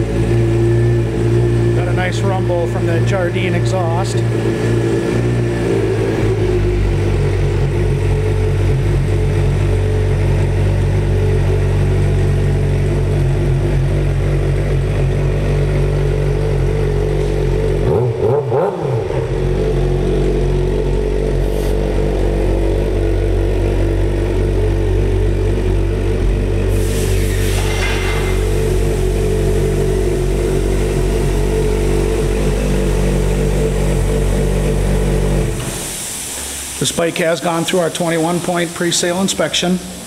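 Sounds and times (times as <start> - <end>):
motorcycle engine idling: 0.0 - 27.3, 28.0 - 35.6.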